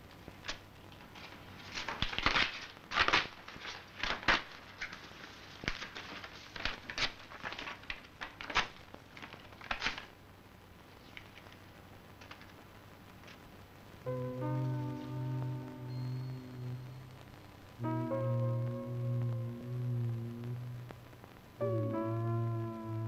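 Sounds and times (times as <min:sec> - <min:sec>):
paper being torn and crumpled: 0:00.4 - 0:10.1.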